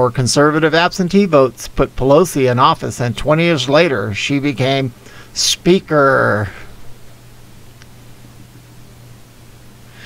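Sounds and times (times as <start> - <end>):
low even hum: 0.0 - 10.0
steady hiss: 0.0 - 10.0.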